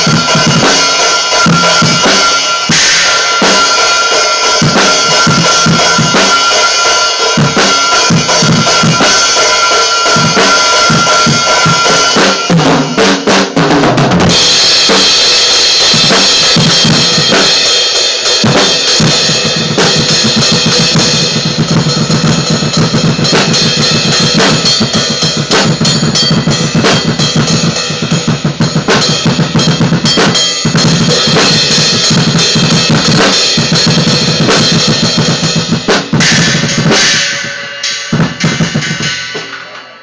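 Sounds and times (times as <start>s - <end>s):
cymbals ringing: 0.0s - 12.6s, 22.4s - 28.2s, 35.6s - 40.0s
drum kit playing: 0.0s - 40.0s.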